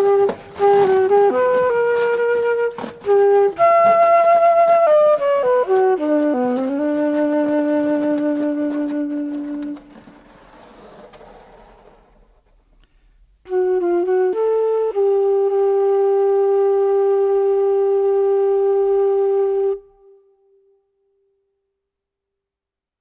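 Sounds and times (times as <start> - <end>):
flute playing: 0.0 - 10.5, 13.4 - 20.8.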